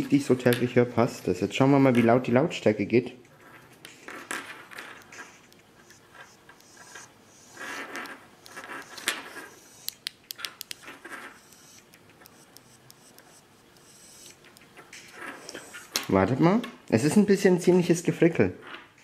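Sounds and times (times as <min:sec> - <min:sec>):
small sharp clicks: 0:07.8 - 0:16.1.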